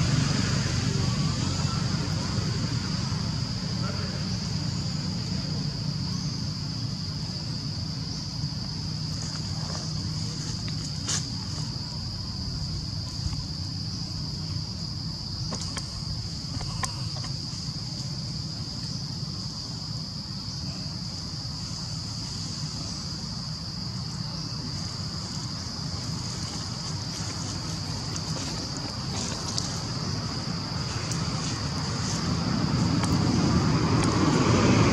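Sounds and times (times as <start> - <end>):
high-pitched insect chorus: 0.0 - 34.9.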